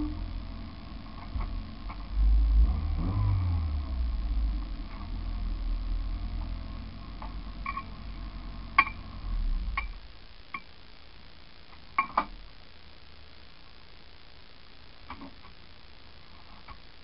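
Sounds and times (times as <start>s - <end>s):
car engine idling: 0.0s - 10.2s.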